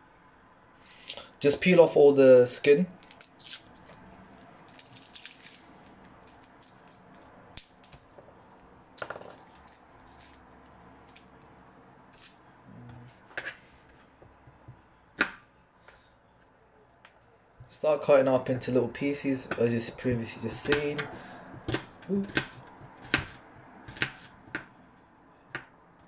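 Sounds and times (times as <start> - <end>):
garlic skin crackling and rustling: 2.9 - 11.5.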